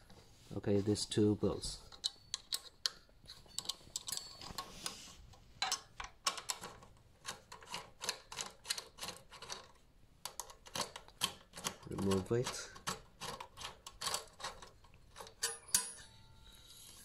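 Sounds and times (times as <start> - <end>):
hex key clicking on bolts: 5.7 - 15.9.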